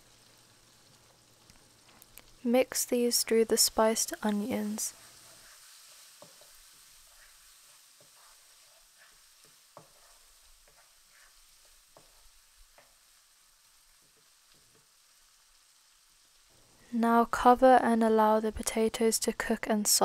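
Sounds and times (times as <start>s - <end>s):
food frying in oil: 0.0s - 20.0s
wooden spatula scraping pan: 4.0s - 13.0s.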